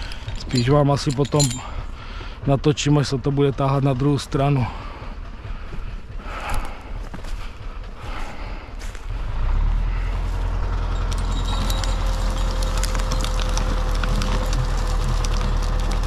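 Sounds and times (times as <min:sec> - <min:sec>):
tractor engine running: 0:00.0 - 0:16.0
wood cracking and snapping: 0:11.0 - 0:16.0.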